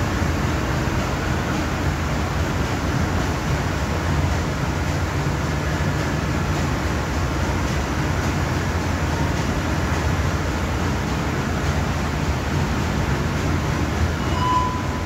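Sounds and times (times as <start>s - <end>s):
ship diesel engine droning: 0.0s - 15.0s.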